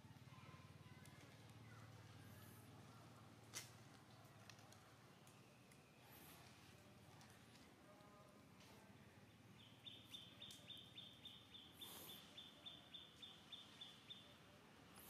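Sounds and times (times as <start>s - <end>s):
faint high chirping: 9.6s - 14.4s.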